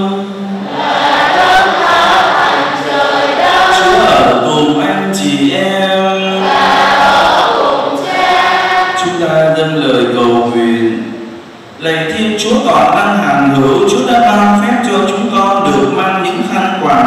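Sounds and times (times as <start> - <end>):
congregation singing in unison: 0.0 - 11.3.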